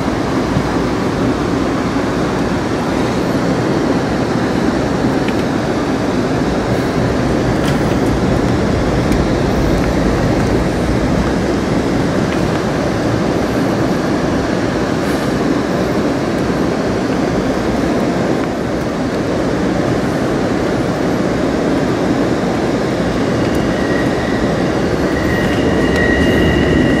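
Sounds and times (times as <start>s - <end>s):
passenger train running noise: 0.0s - 27.0s
high wheel squeal: 22.8s - 27.0s.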